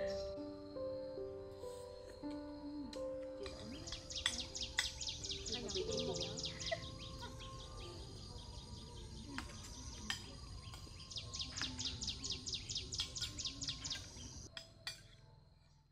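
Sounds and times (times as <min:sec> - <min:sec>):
spoons clicking against dishes: 0:03.4 - 0:05.1, 0:13.0 - 0:15.2
bird chirping rapidly: 0:03.8 - 0:10.0.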